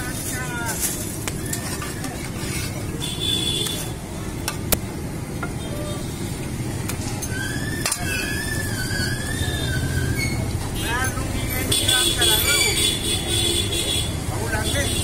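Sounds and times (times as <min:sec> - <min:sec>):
street traffic rumble: 0:00.0 - 0:15.0
wavering high tone: 0:07.3 - 0:10.4.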